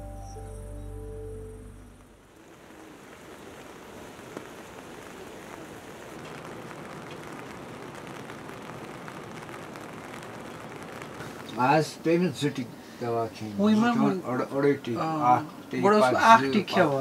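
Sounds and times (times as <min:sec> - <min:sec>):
steady rain: 0:01.2 - 0:17.0.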